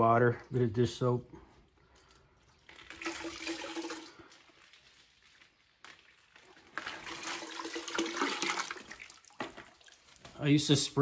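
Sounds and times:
water trickling: 0:01.8 - 0:10.4
water pouring and splashing: 0:02.2 - 0:10.7.

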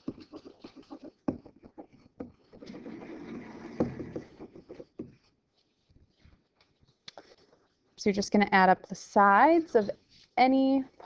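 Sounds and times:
stylus tapping and scratching: 0:00.0 - 0:07.8
rustling noise: 0:00.0 - 0:08.0, 0:09.7 - 0:11.0.

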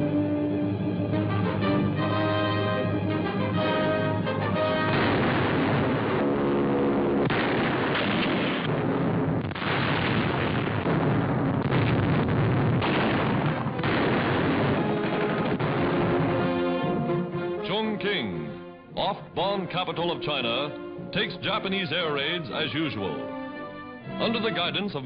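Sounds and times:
orchestral music: 0:00.0 - 0:07.3, 0:13.5 - 0:25.0
bombs exploding: 0:04.5 - 0:18.2.

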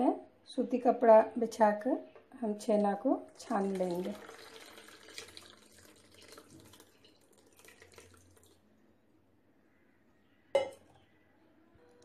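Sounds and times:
curdled milk pouring and splashing: 0:03.2 - 0:08.7.

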